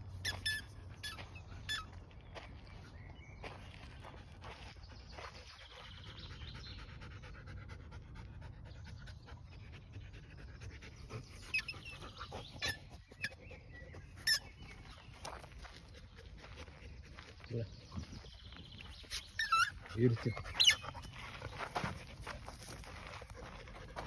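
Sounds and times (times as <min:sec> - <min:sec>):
dog panting rapidly: 0:04.2 - 0:17.4, 0:19.2 - 0:24.0.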